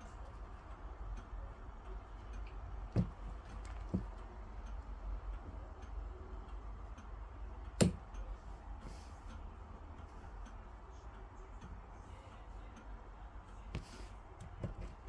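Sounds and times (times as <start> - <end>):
low steady hum: 0.0 - 15.0
wall clock ticking: 0.0 - 15.0.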